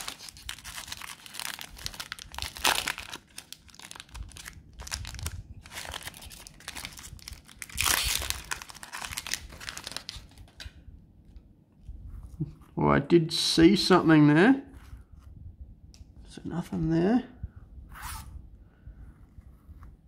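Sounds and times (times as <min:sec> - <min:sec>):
plastic wrapper crinkling and tearing: 0:00.0 - 0:10.8.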